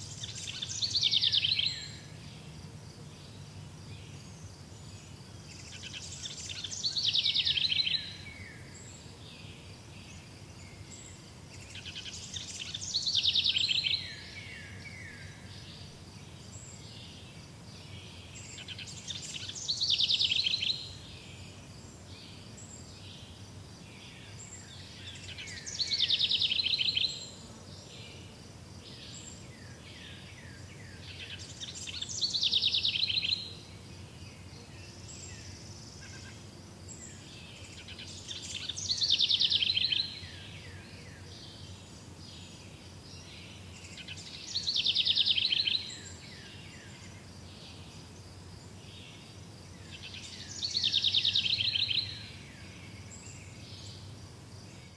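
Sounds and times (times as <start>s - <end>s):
songbird trilling song: 0.0s - 2.5s, 3.2s - 27.4s, 28.8s - 54.1s
steady low background noise: 0.0s - 54.9s.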